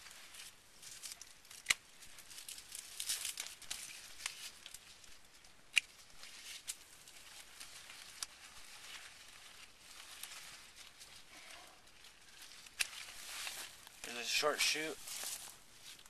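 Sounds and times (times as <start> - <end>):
rustle of vine leaves: 0.0 - 16.0
pruning shears snipping stems: 1.0 - 1.9, 12.6 - 13.7.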